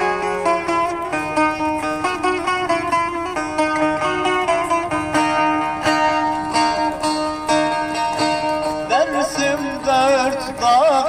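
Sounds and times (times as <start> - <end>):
plucked string instrument: 0.0 - 11.0
wavering melody with vibrato: 0.0 - 11.0.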